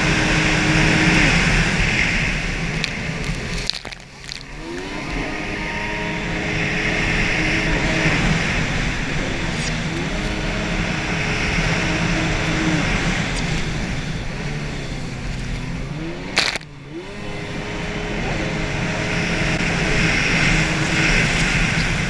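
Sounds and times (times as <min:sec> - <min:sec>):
jet ski engine at speed: 0:00.0 - 0:22.0
sharp crack: 0:02.7 - 0:04.8, 0:16.4 - 0:16.7.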